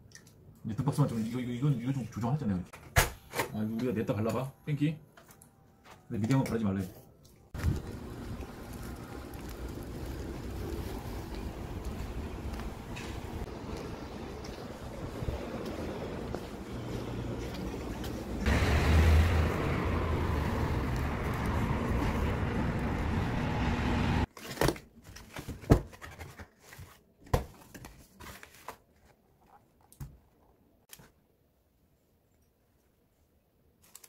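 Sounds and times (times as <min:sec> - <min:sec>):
street noise hiss and rumble: 0:07.6 - 0:24.3.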